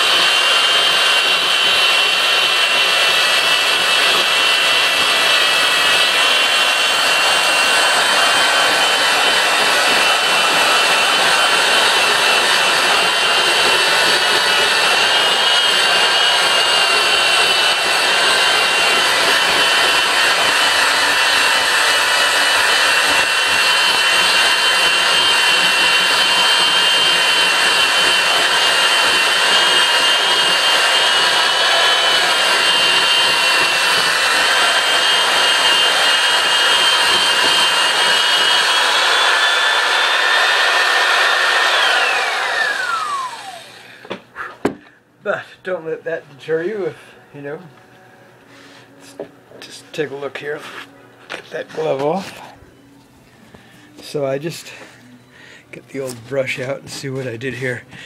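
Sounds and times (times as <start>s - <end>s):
power drill motor whine: 0.0s - 44.9s.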